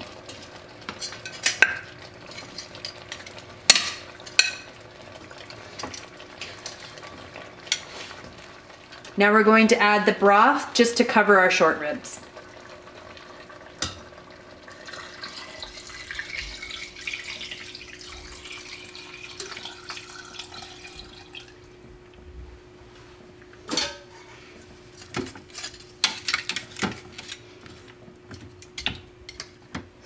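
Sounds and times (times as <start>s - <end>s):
broth pouring into pot: 12.2s - 21.8s.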